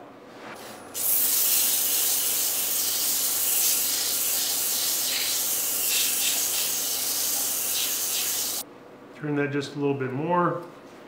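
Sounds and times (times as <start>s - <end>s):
sandpaper hissing on spinning wood: 1.0s - 8.6s.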